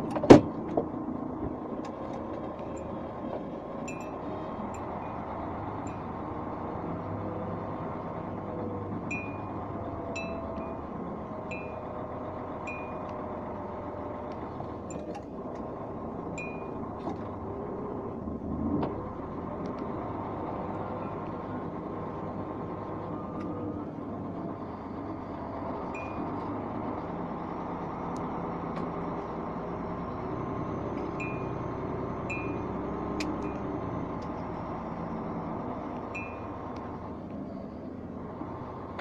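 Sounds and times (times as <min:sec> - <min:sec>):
vehicle bump: 0:00.0 - 0:05.2
vehicle engine and road rumble: 0:00.0 - 0:39.0
small metallic clinks: 0:03.9 - 0:05.2.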